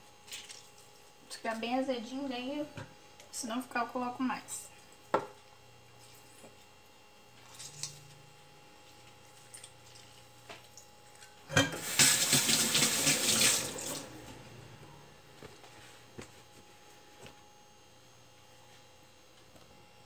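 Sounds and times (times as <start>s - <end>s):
water running from tap: 11.7s - 14.1s.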